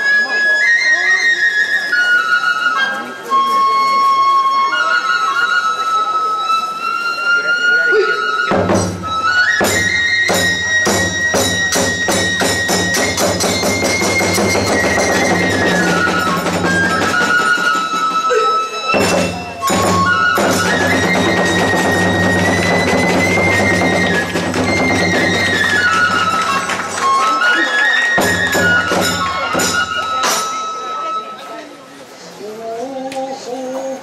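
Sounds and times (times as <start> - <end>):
bamboo flute melody: 0.0 - 32.2
rapid barrel drum beating: 8.5 - 18.2, 19.0 - 27.2
small drum: 8.5 - 27.2, 28.1 - 30.5
hand cymbals clashing: 8.6 - 27.0, 28.2 - 30.8.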